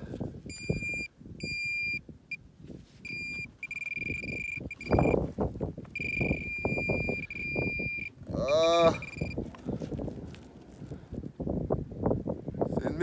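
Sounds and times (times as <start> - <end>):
metal detector pinpointer buzzing: 0.5 - 2.0, 3.0 - 5.2, 5.9 - 8.2, 9.0 - 9.4.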